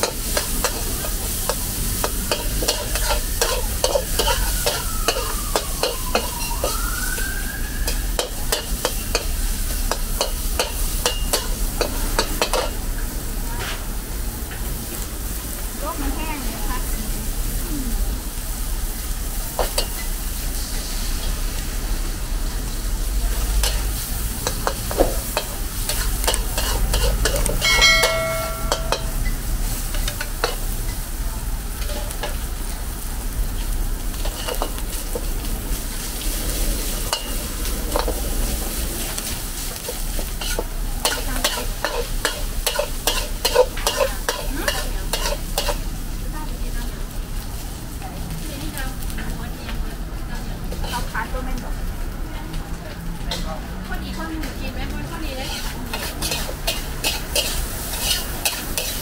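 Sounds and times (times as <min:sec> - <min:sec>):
metal spatula scraping a pan: 0:00.0 - 0:06.4, 0:24.4 - 0:30.6, 0:34.2 - 0:35.2, 0:39.9 - 0:45.8, 0:50.7 - 0:51.1, 0:55.4 - 0:59.0
food sizzling in a wok: 0:00.0 - 0:59.0
short ringing tone: 0:27.6 - 0:29.2.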